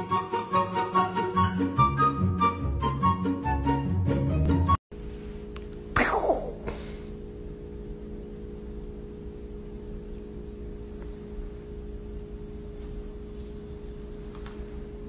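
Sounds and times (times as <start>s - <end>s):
steady low hum: 4.9s - 15.0s.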